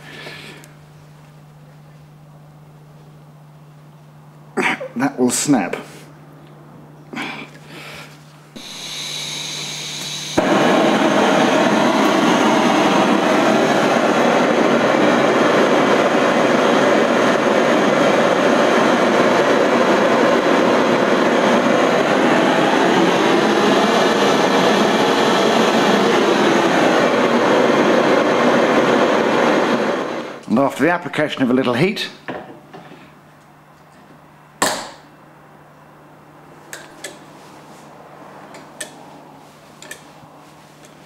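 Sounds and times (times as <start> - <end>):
blowtorch burning: 8.5 - 30.5.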